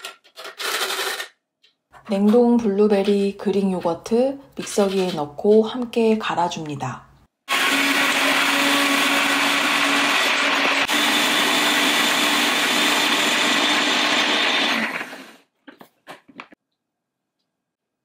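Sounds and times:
blender running: 7.5 - 15.5.

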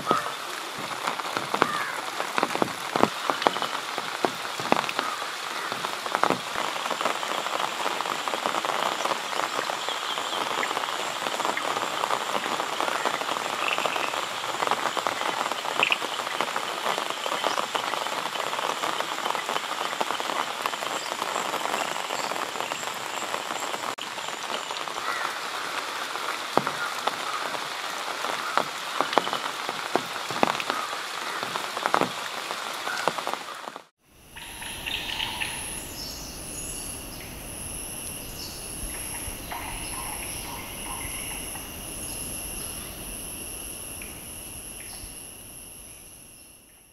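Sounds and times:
rain drops tapping: 0.0 - 46.0
high insect trill: 3.3 - 23.9, 34.1 - 46.9.

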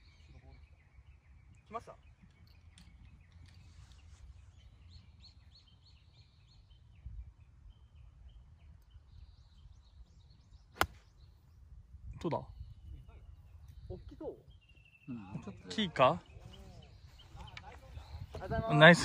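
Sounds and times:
birds chirping faintly: 0.0 - 19.0
golf club striking ball: 10.8 - 11.0.

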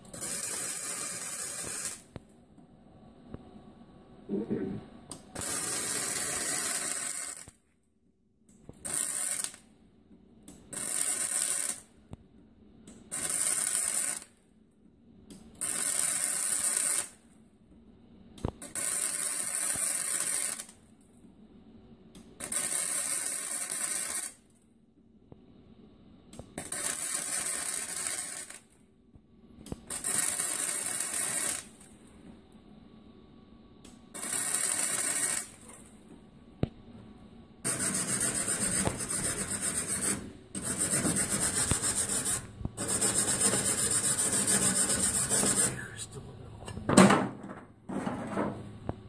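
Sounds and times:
welding arc crackling: 0.0 - 2.2, 5.3 - 7.6, 8.7 - 9.6, 10.7 - 11.9, 13.1 - 14.4, 15.5 - 17.2, 18.6 - 20.8, 22.4 - 24.4, 26.6 - 28.8, 29.6 - 31.9, 34.2 - 35.8, 37.6 - 45.9.

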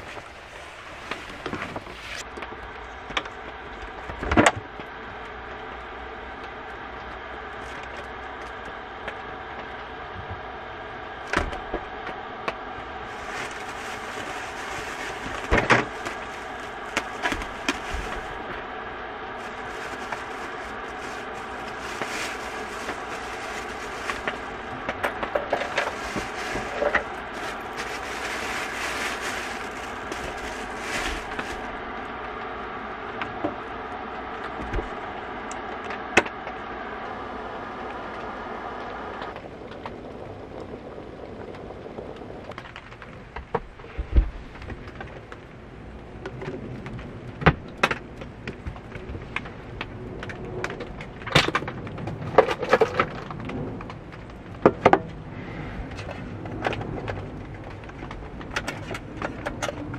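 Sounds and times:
plastic bags rustling: 0.0 - 3.1, 12.8 - 32.2
steady low hum: 0.0 - 59.9.

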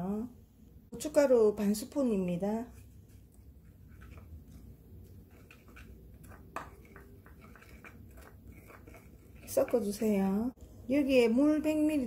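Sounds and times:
spoon scraping in bowl: 3.6 - 10.4.

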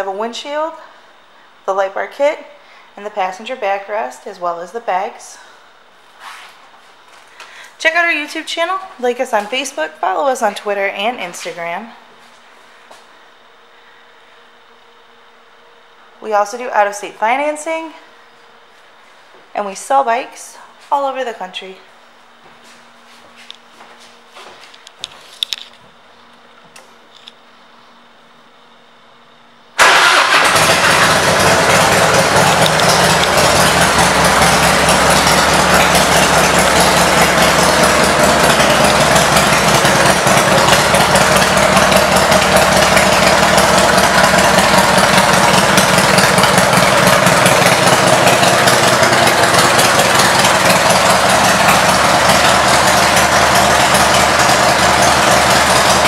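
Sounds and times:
motorcycle engine starting and idling: 29.8 - 56.0.

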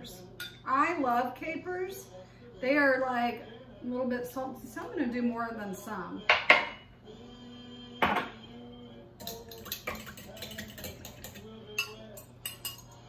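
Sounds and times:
metal spoon clinking in glass jar: 9.2 - 13.0.

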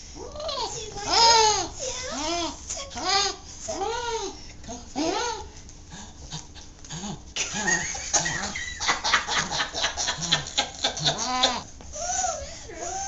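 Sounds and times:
dog grunting: 5.9 - 8.6.

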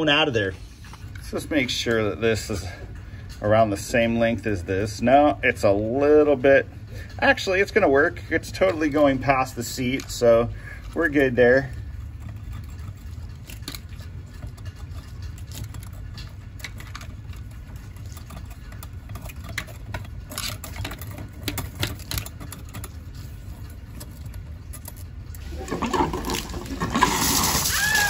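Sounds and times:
wire scraping in metal spout: 0.0 - 28.0
water rushing from spout: 25.4 - 28.0.

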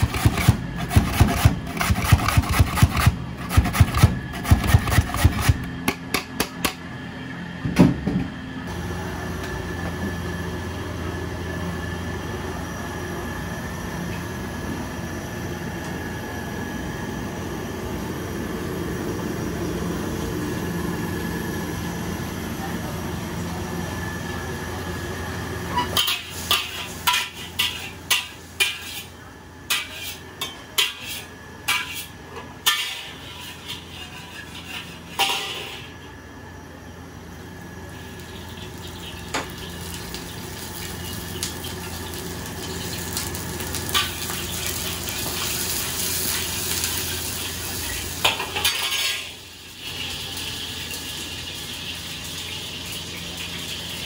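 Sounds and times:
rice sizzling: 25.9 - 36.0, 37.4 - 54.0.

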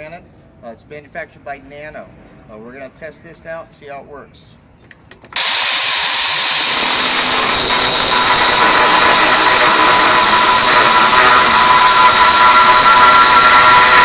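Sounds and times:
angle grinder drilling into stone: 5.4 - 14.0.

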